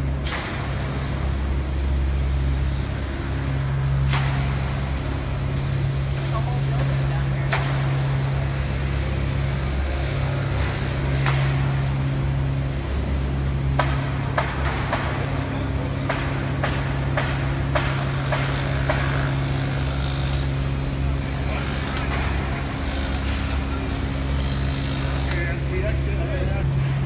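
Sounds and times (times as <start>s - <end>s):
low machine hum: 0.0s - 27.0s
sharp knocks and clanks: 13.6s - 20.5s, 21.2s - 25.4s.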